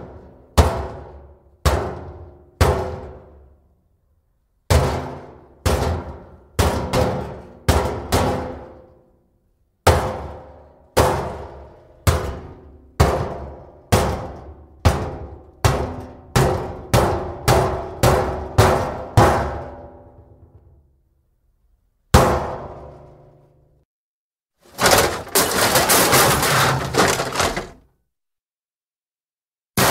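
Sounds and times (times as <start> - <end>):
steel barrel banging: 24.7 - 27.8.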